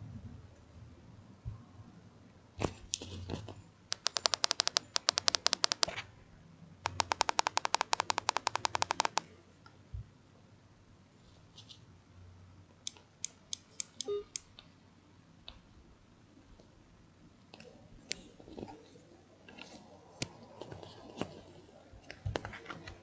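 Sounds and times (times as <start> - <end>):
rapid small clicks: 3.9 - 6.0, 6.8 - 9.8.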